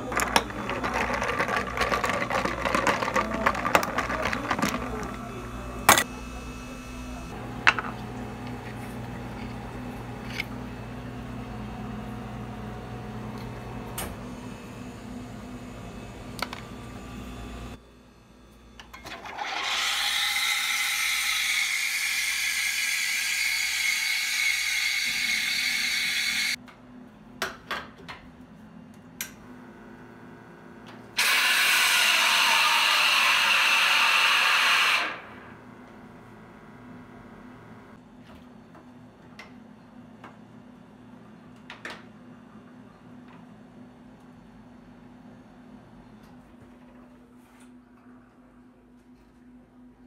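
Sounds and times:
low machine hum: 0:00.0 - 0:18.9.

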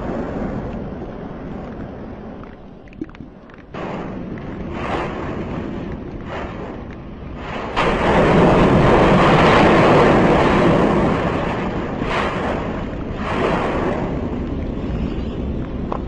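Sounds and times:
wind: 0:00.0 - 0:16.0
roar of lava fountain: 0:03.7 - 0:16.0.

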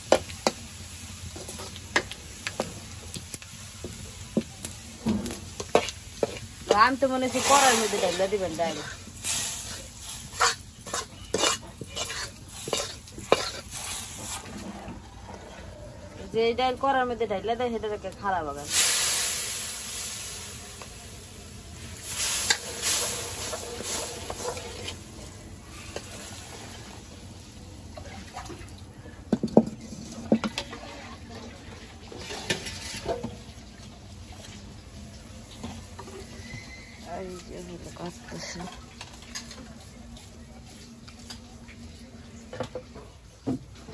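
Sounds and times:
oil sizzling: 0:00.0 - 0:43.9
metal ladle scraping a wok: 0:05.2 - 0:15.7, 0:22.0 - 0:26.8.

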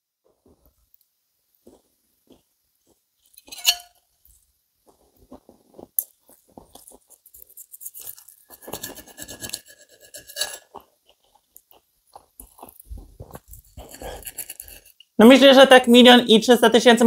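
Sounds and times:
knife and fork scraping plate: 0:03.4 - 0:04.0, 0:07.5 - 0:10.8
knife squeaking on plate: 0:03.4 - 0:04.0, 0:07.9 - 0:10.7.

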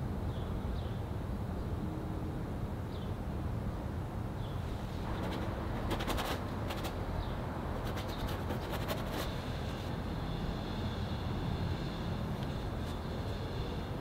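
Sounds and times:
rapid clicks: 0:05.1 - 0:07.0.

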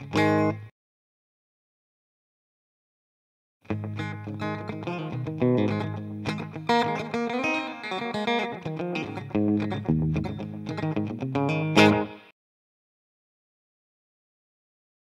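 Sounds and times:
electric guitar with slapback echo: 0:00.0 - 0:00.7, 0:03.7 - 0:12.3.

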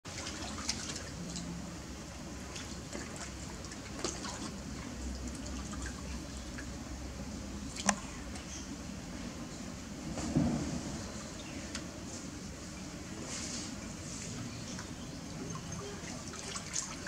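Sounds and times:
water splashing and dripping: 0:00.1 - 0:06.9, 0:14.3 - 0:17.0.

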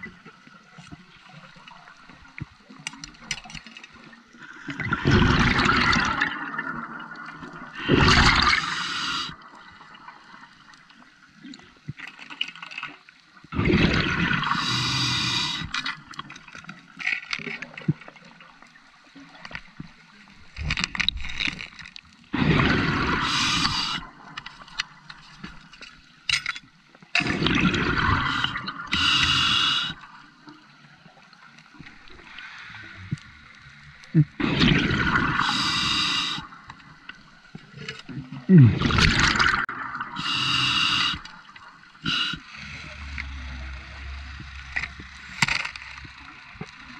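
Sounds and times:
diver's breath bubbling: 0:04.8 - 0:09.4, 0:13.6 - 0:15.9, 0:22.4 - 0:24.2, 0:27.2 - 0:30.0, 0:34.1 - 0:36.6, 0:38.3 - 0:43.9.

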